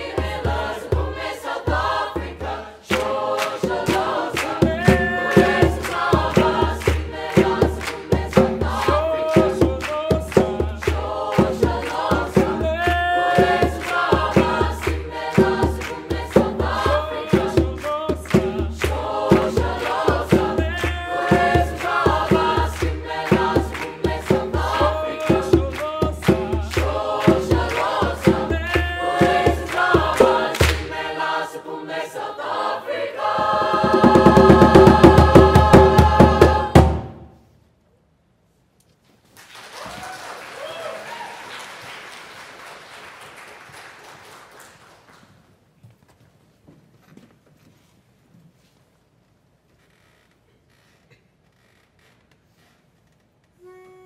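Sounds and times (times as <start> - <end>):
hand-drum beat: 0.0 - 31.1, 33.4 - 37.2
mixed choir singing: 0.0 - 37.3
group hand-clapping: 2.9 - 31.2, 39.4 - 45.5.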